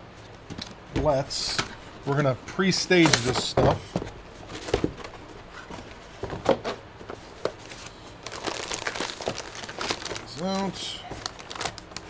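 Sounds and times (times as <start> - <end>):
cardboard rustling: 3.0 - 12.0.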